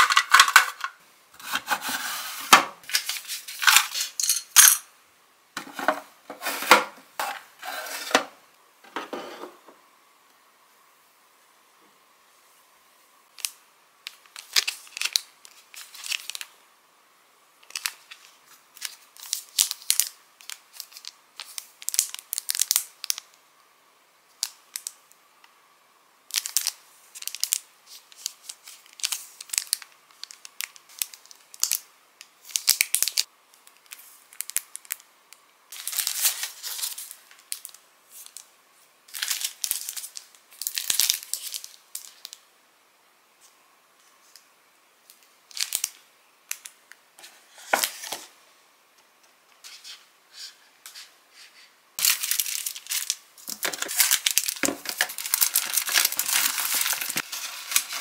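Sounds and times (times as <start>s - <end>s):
plastic packaging crinkling: 13.4s - 16.5s, 17.6s - 23.3s, 26.3s - 31.8s, 32.4s - 35.0s, 35.7s - 38.5s, 39.1s - 42.4s, 45.1s - 46.8s, 52.0s - 58.0s.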